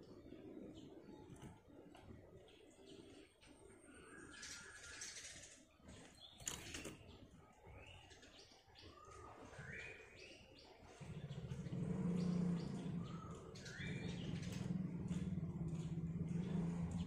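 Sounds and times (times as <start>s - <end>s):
low droning hum: 11.0s - 17.0s.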